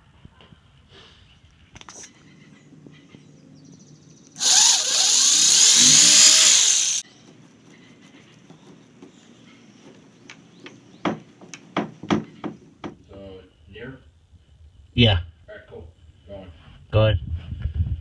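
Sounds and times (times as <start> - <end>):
electric drill boring plastic: 4.4 - 7.0.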